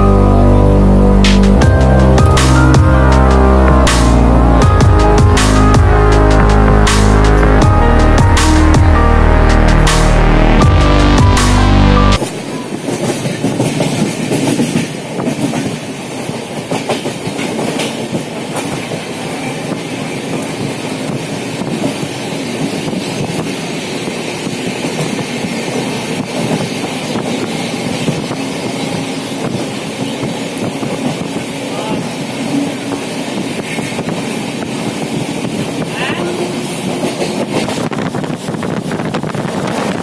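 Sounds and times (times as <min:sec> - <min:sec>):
wheels rumbling on rail: 0:00.0 - 0:40.0
wheels clicking over rail joints: 0:12.2 - 0:23.6.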